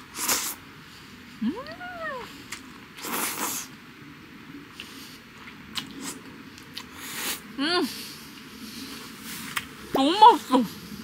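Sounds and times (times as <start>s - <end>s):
person slurping noodles: 0.1s - 0.6s, 3.0s - 3.7s.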